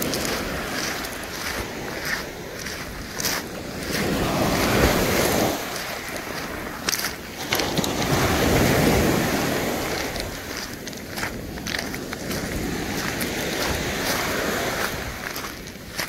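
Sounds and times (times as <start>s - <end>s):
waves breaking on pebble beach: 0.0s - 16.0s.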